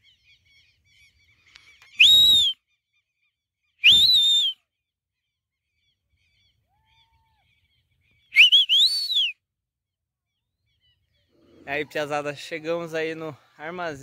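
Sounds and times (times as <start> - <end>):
person whistling loudly: 2.0 - 2.6, 3.8 - 4.6, 8.4 - 9.4.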